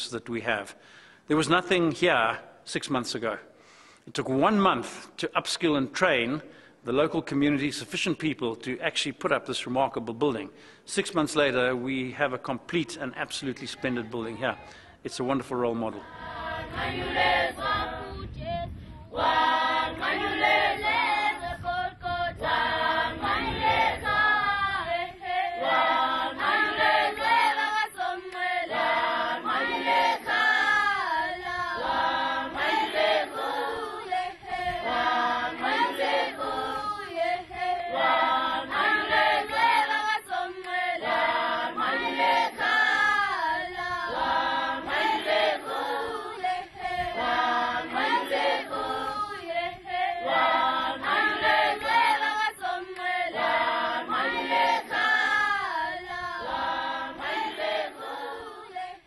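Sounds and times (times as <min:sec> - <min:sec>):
children's choir singing: 0:15.9 - 0:59.0.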